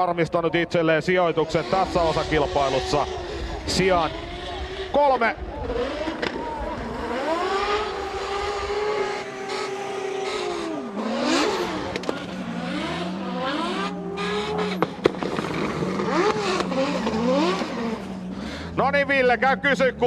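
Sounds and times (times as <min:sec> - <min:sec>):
car engine revving hard: 0:01.3 - 0:18.8
sharp cracks: 0:06.0 - 0:07.2, 0:14.6 - 0:17.8.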